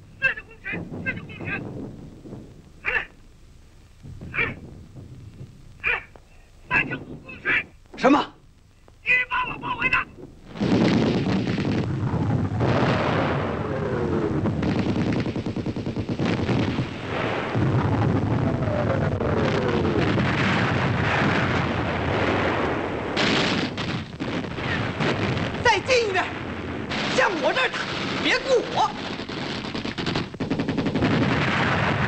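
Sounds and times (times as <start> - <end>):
explosions: 0.2 - 3.3, 3.9 - 8.2, 9.0 - 32.0
machine-gun and rifle fire: 9.8 - 12.0, 14.6 - 17.5, 20.0 - 26.0, 26.9 - 32.0.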